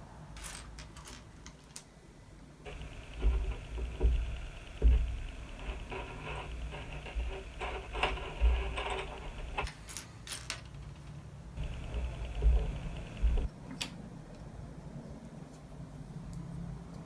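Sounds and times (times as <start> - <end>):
plastic toy bricks clattering: 0.4 - 1.8.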